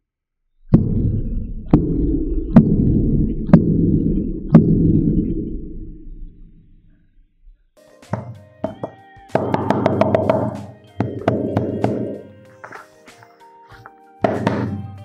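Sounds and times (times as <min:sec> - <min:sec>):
fist punching subwoofer radiator: 0:00.6 - 0:07.0
low boom from subwoofer: 0:00.7 - 0:07.0.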